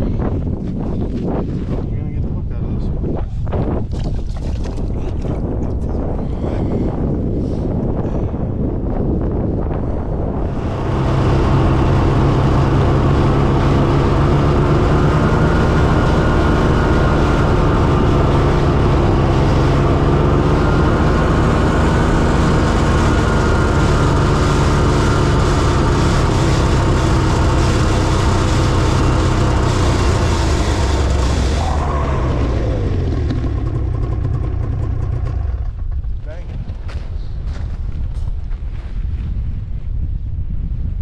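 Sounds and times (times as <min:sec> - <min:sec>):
off-road vehicle engine: 0:09.2 - 0:37.7.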